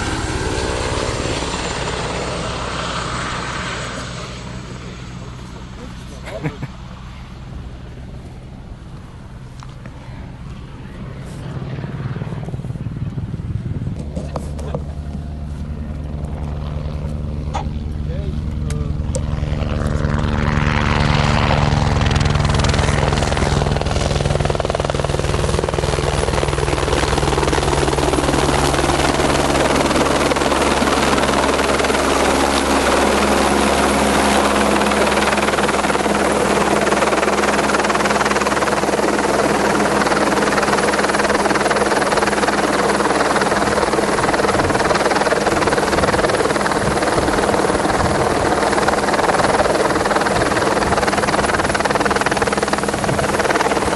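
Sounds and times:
helicopter rotor thump: 0:12.3 - 0:53.9.

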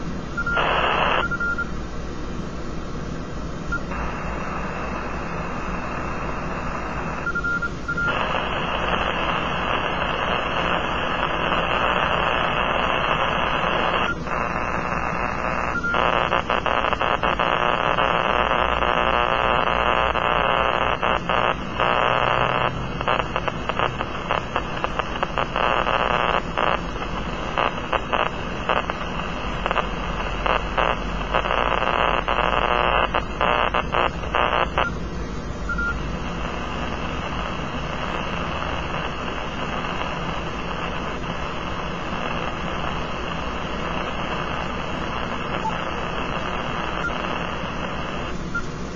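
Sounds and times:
radio static: 0:00.0 - 0:01.6, 0:03.7 - 0:48.9.

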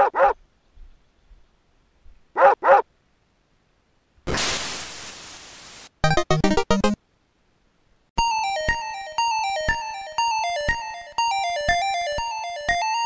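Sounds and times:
dog-like barks: 0:00.0 - 0:00.4, 0:02.4 - 0:02.9
steady hiss: 0:04.1 - 0:06.0
chiptune notes: 0:06.0 - 0:07.0, 0:08.2 - 0:13.0.

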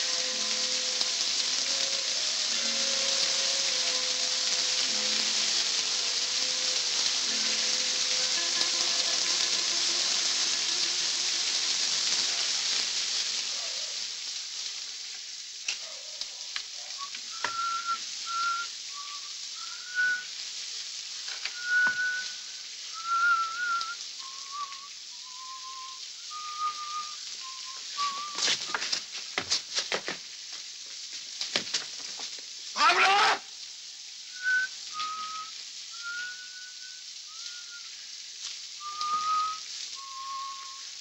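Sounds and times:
rain falling: 0:00.0 - 0:41.0
man whistling a tune: 0:17.0 - 0:20.4, 0:21.5 - 0:28.7, 0:34.3 - 0:38.0, 0:38.8 - 0:41.0.

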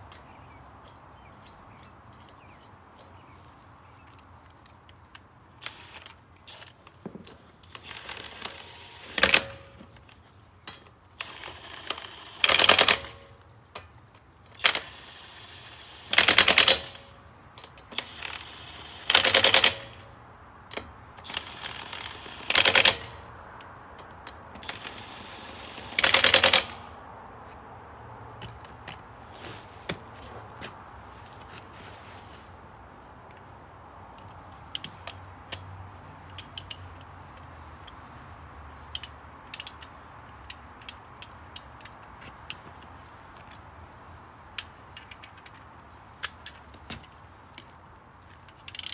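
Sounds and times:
small metal clicks: 0:34.1 - 0:38.0, 0:38.8 - 0:43.6, 0:44.5 - 0:48.9.

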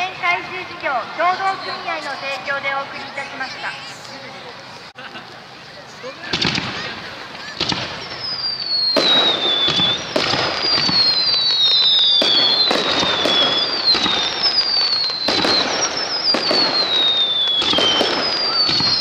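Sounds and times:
fireworks whistling: 0:00.0 - 0:04.0, 0:06.2 - 0:19.0
fireworks bursting cracks: 0:06.2 - 0:19.0
fireworks launch thumps: 0:17.6 - 0:19.0.

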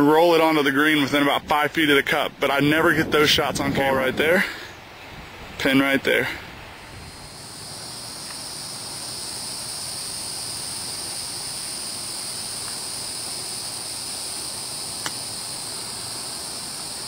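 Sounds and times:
high-pitched insect chorus: 0:06.1 - 0:17.0.

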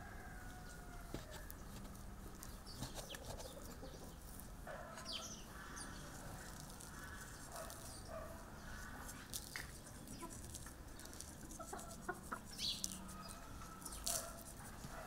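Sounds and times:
chickens clucking: 0:02.7 - 0:04.2, 0:09.9 - 0:14.3.

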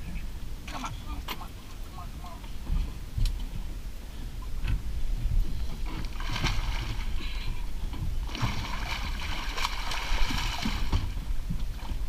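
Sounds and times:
steady low rumble: 0:00.0 - 0:12.0
fish thrashing and splashing water: 0:06.0 - 0:07.2, 0:08.2 - 0:11.3.

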